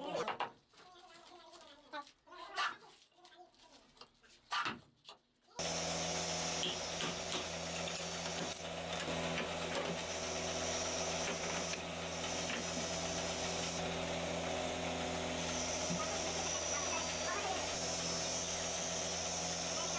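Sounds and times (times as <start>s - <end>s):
workshop machine humming: 5.6s - 19.9s.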